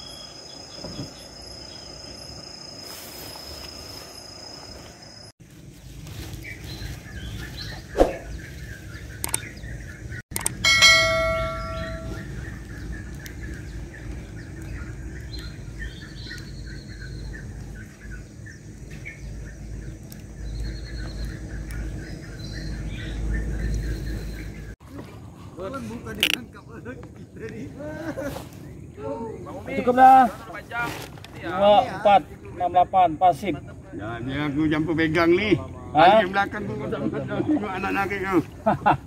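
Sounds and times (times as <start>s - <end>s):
night insects trilling: 0.0s - 6.4s
small birds chirping: 0.0s - 32.7s
bell-like notification chime: 10.6s - 12.3s.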